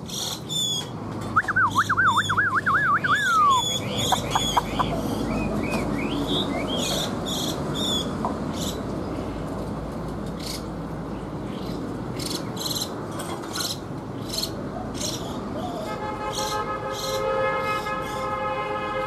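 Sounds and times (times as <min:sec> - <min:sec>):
bird chirps: 0:00.1 - 0:08.1.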